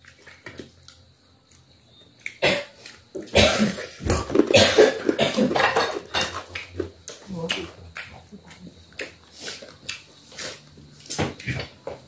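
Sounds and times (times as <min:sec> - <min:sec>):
person coughing: 0:03.3 - 0:03.9, 0:04.5 - 0:06.4.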